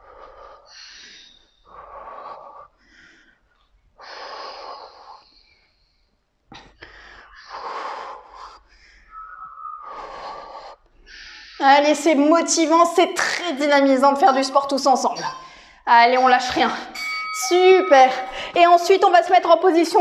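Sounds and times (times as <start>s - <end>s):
woman breathing hard: 18.1s - 18.6s.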